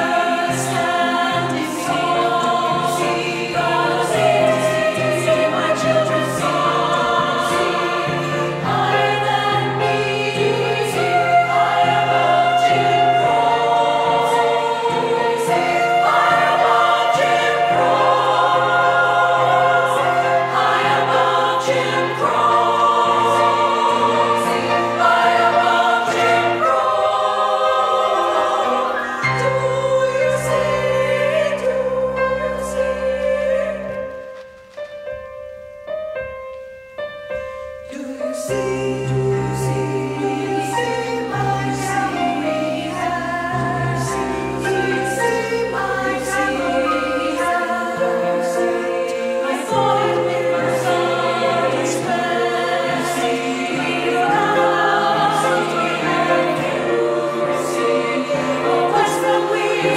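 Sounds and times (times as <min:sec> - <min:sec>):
women's choir singing in harmony: 0:00.0 - 0:59.9.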